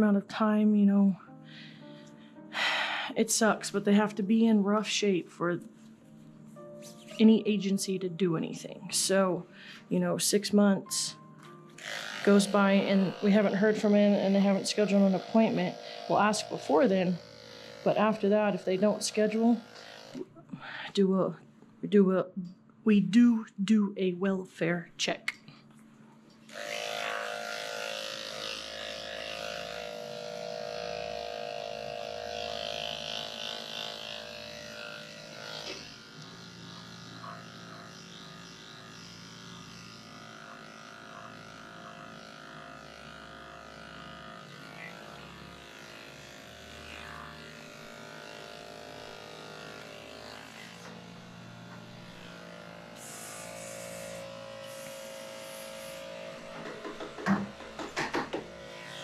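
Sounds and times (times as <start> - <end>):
electric clippers humming: 0.6 - 5.2, 5.8 - 20.4, 26.4 - 59.0
coolant spray hissing: 53.0 - 54.1.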